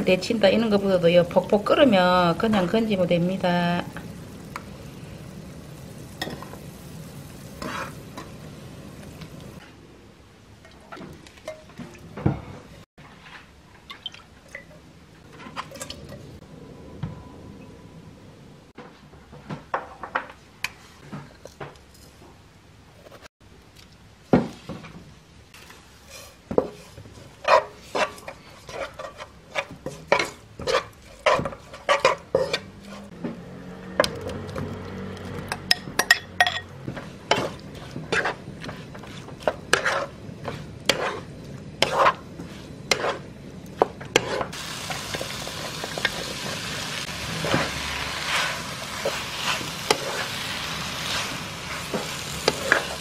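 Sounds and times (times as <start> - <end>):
frying sizzle: 0.0 - 9.6, 29.5 - 53.0
utensils scraping frying pan: 7.4 - 8.4, 26.0 - 33.2, 36.9 - 43.3, 44.1 - 53.0.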